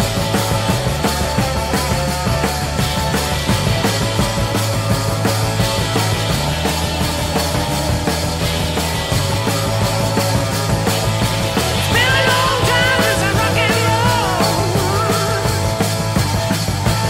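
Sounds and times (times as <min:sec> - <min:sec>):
rock music with drums and bass: 0:00.0 - 0:17.0.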